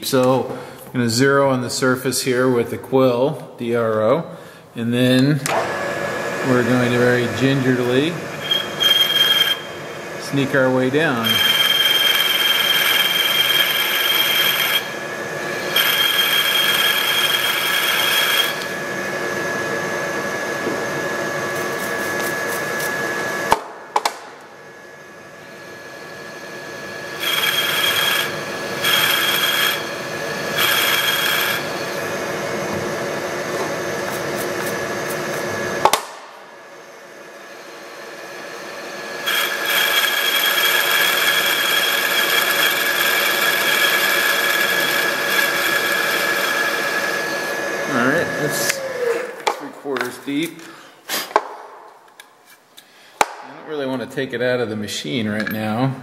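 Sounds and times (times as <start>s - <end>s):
milling machine whine: 5.0s - 23.6s, 24.3s - 50.2s.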